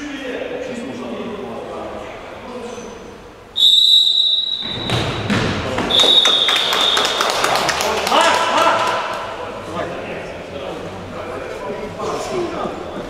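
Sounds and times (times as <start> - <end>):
referee's whistle blast: 3.6 - 5.0, 5.9 - 7.2
ball and feet thudding on court: 4.6 - 5.9.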